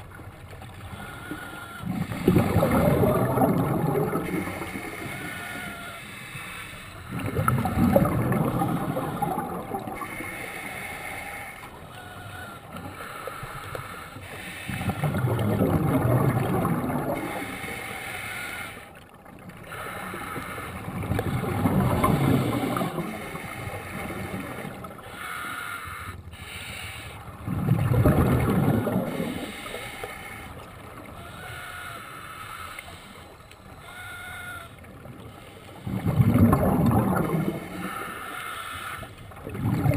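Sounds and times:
exhaled bubbles rushing: 0:01.8 - 0:05.3, 0:07.1 - 0:10.2, 0:14.7 - 0:17.6, 0:20.8 - 0:25.0, 0:27.3 - 0:29.8, 0:35.8 - 0:38.2, 0:39.3 - 0:39.9.

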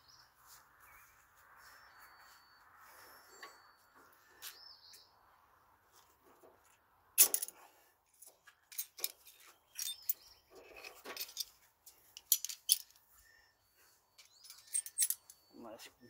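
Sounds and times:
metal parts and tools clinking: 0:07.2 - 0:13.0, 0:14.2 - 0:15.6.

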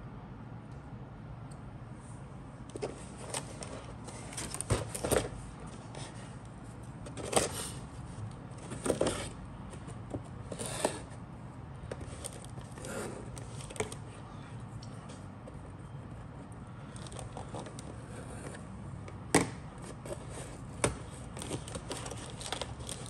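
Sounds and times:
low steady hum: 0:00.0 - 0:23.0
cardboard scraping and rustling: 0:02.7 - 0:06.4, 0:07.0 - 0:11.2, 0:19.8 - 0:23.0.

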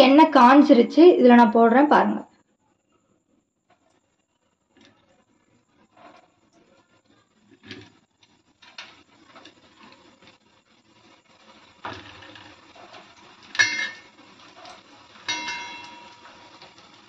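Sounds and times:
oil sizzling and bubbling: 0:03.4 - 0:17.0
metallic clink on steel pan: 0:13.5 - 0:14.1, 0:15.3 - 0:16.6.

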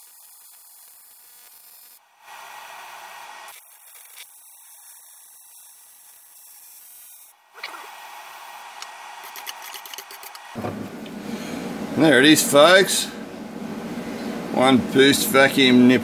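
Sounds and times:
welding arc hissing and buzzing: 0:00.0 - 0:07.4.

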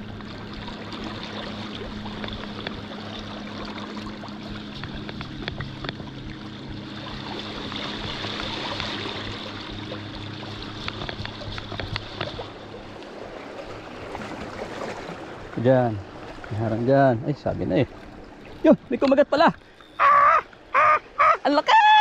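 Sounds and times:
sea water washing among rocks: 0:07.3 - 0:17.0.

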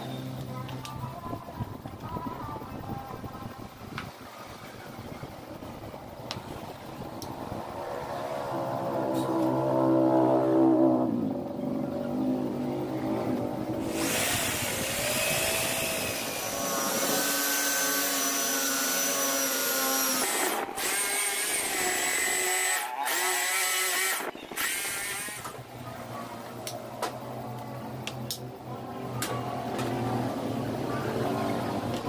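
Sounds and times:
electric drill motor whine: 0:13.8 - 0:25.6.

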